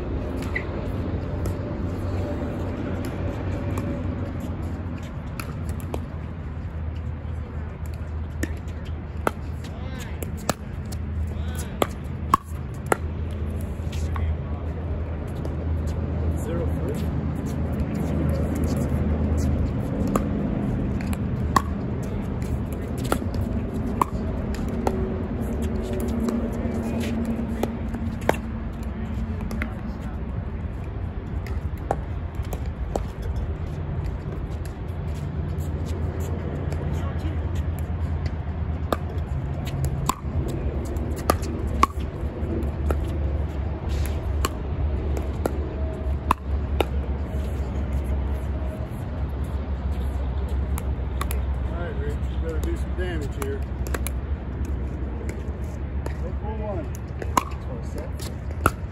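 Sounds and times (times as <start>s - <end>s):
ball bouncing: 7.8s - 14.3s, 17.7s - 29.8s, 37.8s - 43.2s, 43.9s - 47.5s, 53.3s - 56.2s, 57.0s - 58.9s.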